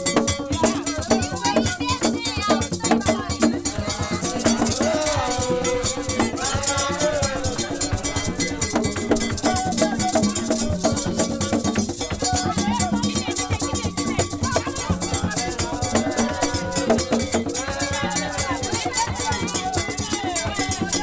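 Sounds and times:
drums in fast rhythm: 0.0s - 21.0s
people singing: 0.0s - 21.0s
struck metal bell: 3.3s - 15.8s.

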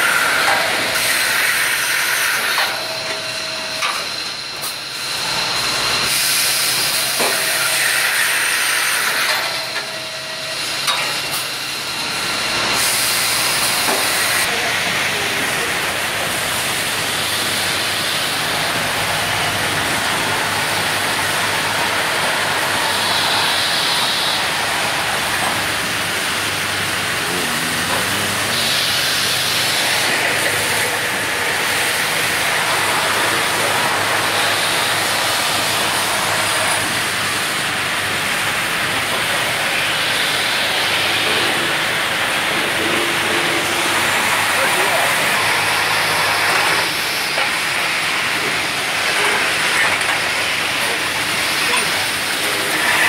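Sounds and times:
machines running with hiss: 0.0s - 53.0s
strong hisses: 14.3s - 53.0s.

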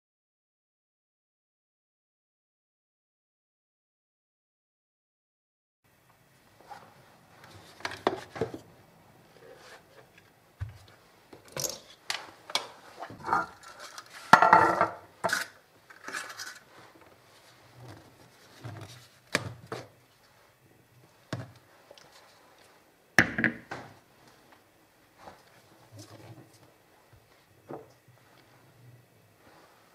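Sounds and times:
paper liners rustling in metal tin: 15.3s - 16.7s.

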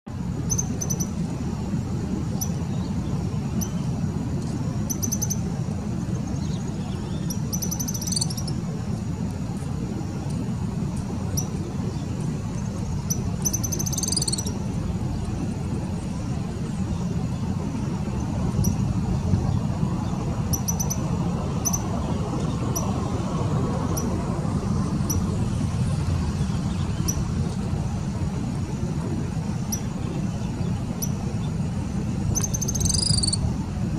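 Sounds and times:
low traffic rumble: 0.0s - 33.9s
bird twittering and trilling: 6.3s - 8.6s, 12.9s - 14.6s, 32.3s - 33.4s.

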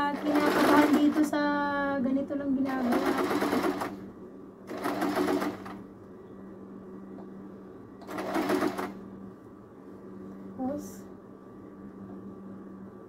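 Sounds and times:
sewing machine stitching: 0.0s - 1.3s, 2.7s - 4.0s, 4.7s - 5.8s, 8.0s - 9.0s
steady low hum: 0.0s - 13.0s.

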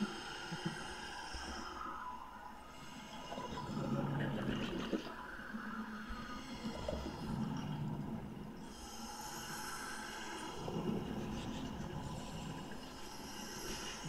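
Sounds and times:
exhaled air bubbling underwater: 3.0s - 14.0s.

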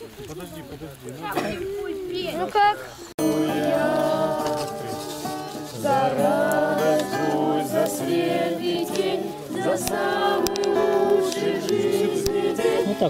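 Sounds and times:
adults and children singing: 3.2s - 13.0s
plucked stringed instrument: 3.2s - 13.0s.

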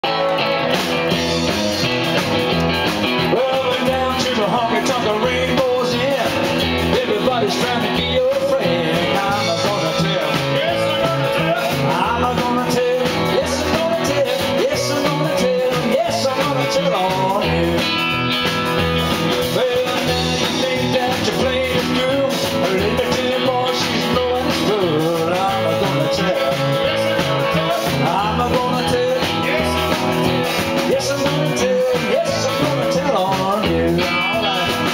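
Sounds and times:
electric guitar lead: 0.0s - 34.9s
rock band playing: 0.0s - 34.9s.

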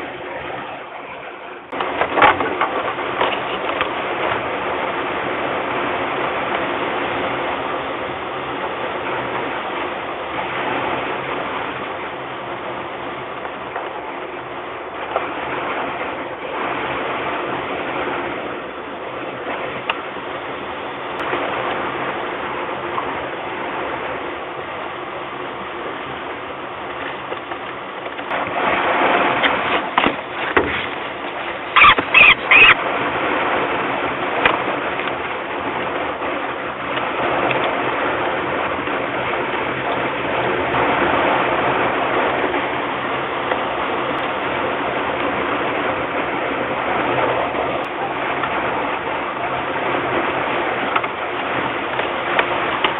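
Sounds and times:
steady rushing noise: 0.0s - 52.9s
falcons squealing and calling: 31.7s - 32.8s.

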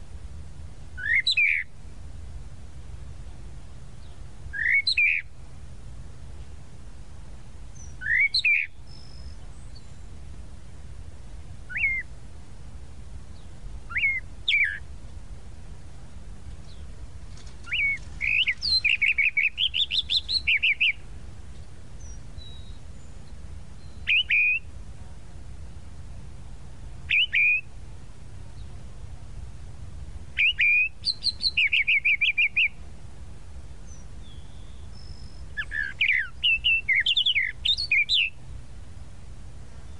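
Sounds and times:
mockingbird singing: 1.0s - 1.7s, 4.0s - 5.3s, 7.8s - 10.0s, 11.7s - 12.1s, 13.3s - 14.9s, 16.6s - 24.7s, 27.1s - 27.7s, 30.4s - 32.8s, 33.9s - 38.4s.

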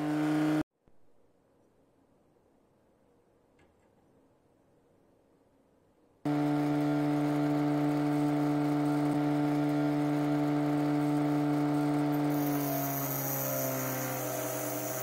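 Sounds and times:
bench grinder motor humming: 6.3s - 15.0s
blade on grinding wheel hiss: 12.3s - 15.0s.

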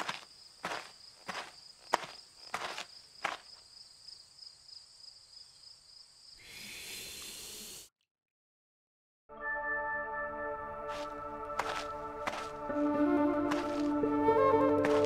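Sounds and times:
soft cartoon footsteps: 0.0s - 3.6s, 10.9s - 12.8s, 13.4s - 15.0s
high cricket-like chirring: 0.0s - 7.0s
music: 9.3s - 15.0s.

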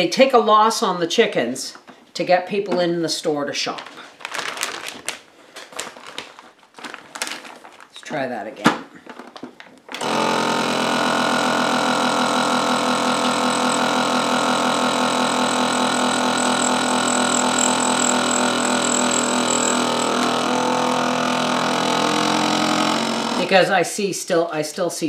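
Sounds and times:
vacuum sealer pump running: 9.9s - 23.5s.

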